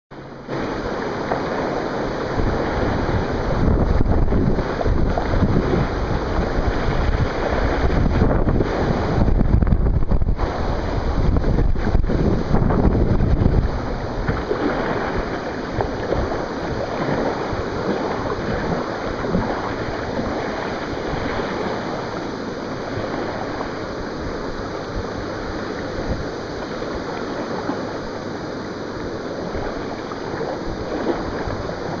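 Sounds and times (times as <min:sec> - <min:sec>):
water rushing through rapid: 0:00.2 - 0:32.0.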